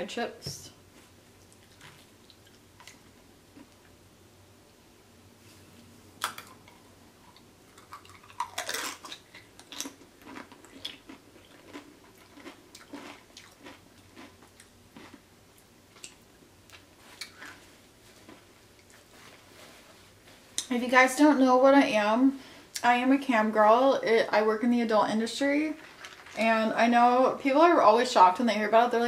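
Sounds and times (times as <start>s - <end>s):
chip crunching while chewed: 6.2s - 15.2s.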